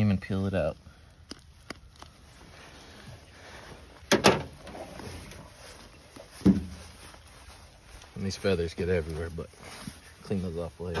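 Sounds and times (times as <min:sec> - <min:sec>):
thumps on a truck bed: 0:06.4 - 0:06.8.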